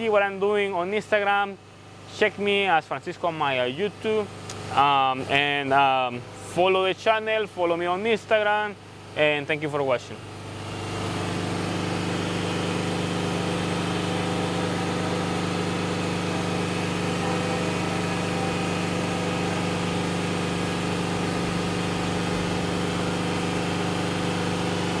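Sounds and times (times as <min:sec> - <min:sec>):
large engine idling: 0:10.2 - 0:25.0.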